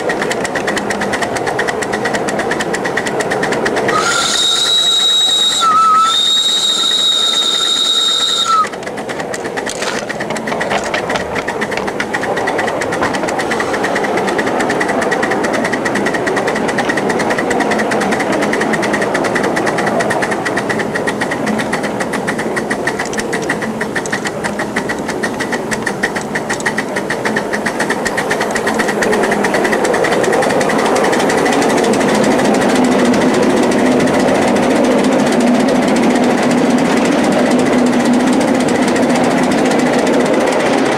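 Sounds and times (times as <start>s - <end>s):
steam locomotive exhaust beat: 0.0s - 40.9s
steam whistle: 3.8s - 8.8s.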